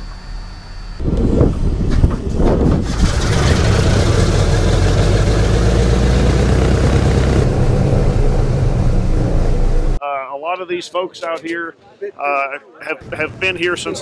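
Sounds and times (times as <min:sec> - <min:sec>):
radial aircraft engines running: 0:00.0 - 0:10.0.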